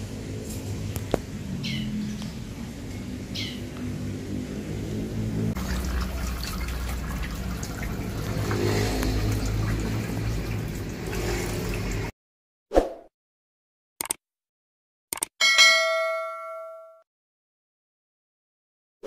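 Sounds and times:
water trickling and splashing: 0:05.5 - 0:12.1
click: 0:14.0 - 0:14.2, 0:15.1 - 0:15.3.

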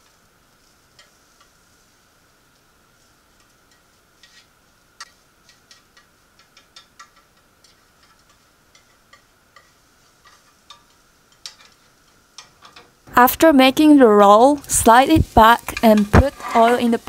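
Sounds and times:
chopsticks tapping and scraping pan: 0:00.9 - 0:01.6, 0:03.4 - 0:13.0, 0:14.5 - 0:17.0.

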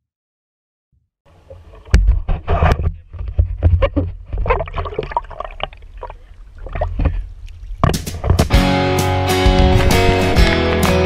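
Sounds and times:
water splashing against kayak hull: 0:01.3 - 0:08.6.

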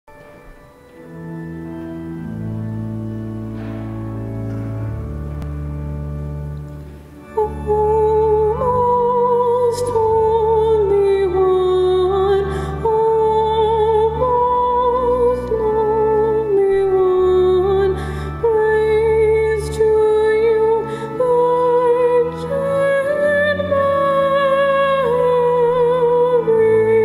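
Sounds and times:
sustained keyboard chords: 0:00.1 - 0:27.0
woman singing with vibrato: 0:07.2 - 0:27.0.

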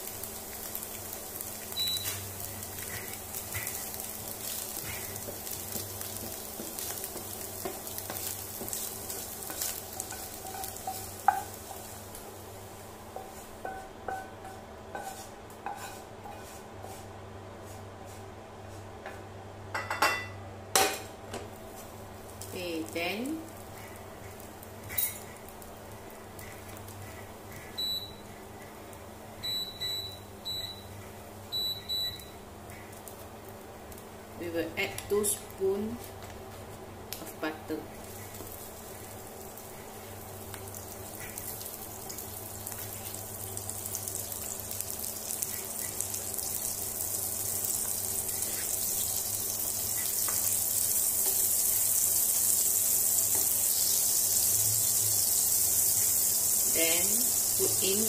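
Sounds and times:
egg sizzling in frying pan: 0:00.0 - 0:16.6, 0:21.4 - 0:34.4, 0:35.0 - 0:58.0
cooktop buzzer beeps: 0:01.6 - 0:02.3, 0:27.8 - 0:28.3, 0:29.4 - 0:32.4
spatula scraping pan: 0:06.2 - 0:12.0, 0:13.1 - 0:17.0.

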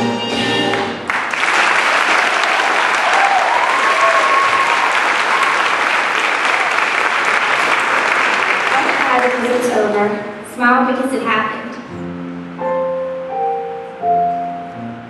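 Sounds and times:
audience applauding: 0:00.7 - 0:10.0
people shouting and cheering: 0:02.3 - 0:06.9.

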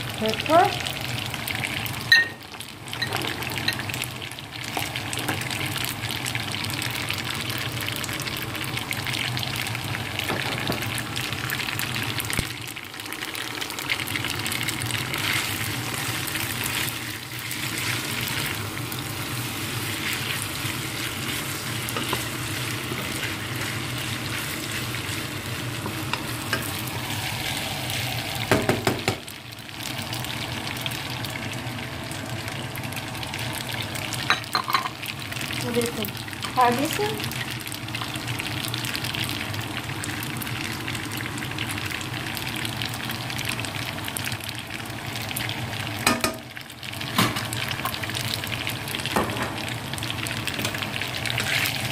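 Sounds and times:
food sizzling in a wok: 0:00.0 - 0:51.9.

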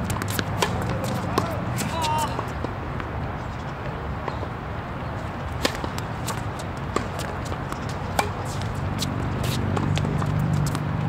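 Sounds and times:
racket hitting tennis ball: 0:00.0 - 0:03.1, 0:05.3 - 0:11.0
background murmur: 0:00.0 - 0:11.0.

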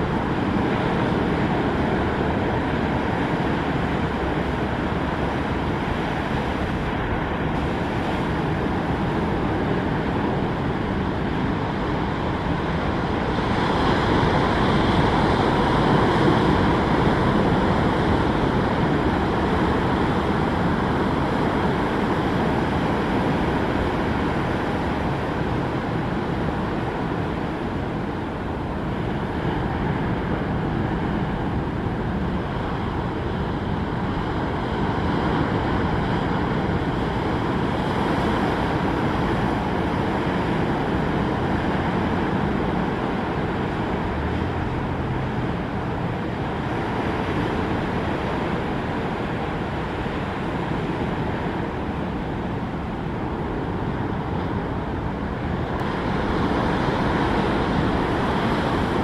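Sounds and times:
ocean surf breaking: 0:00.0 - 0:59.0.

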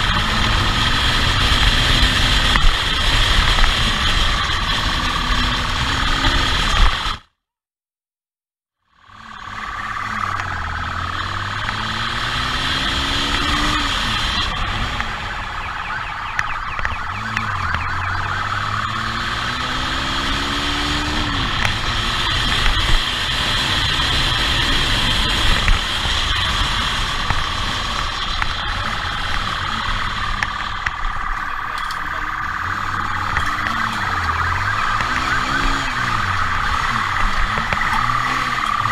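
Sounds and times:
motorcycle engine pulling hard: 0:00.0 - 0:07.3, 0:09.0 - 0:15.9, 0:16.6 - 0:38.9
siren: 0:00.0 - 0:07.3, 0:08.9 - 0:38.9
wind and road rush: 0:00.0 - 0:07.3, 0:09.0 - 0:38.9.

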